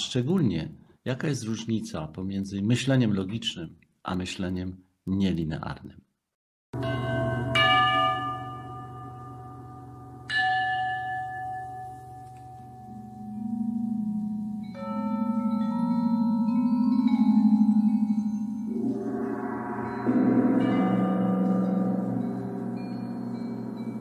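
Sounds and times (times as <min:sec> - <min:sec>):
struck bell tone: 0:06.8 - 0:24.0
sustained chords: 0:13.5 - 0:24.0
low steady drone: 0:18.6 - 0:24.0.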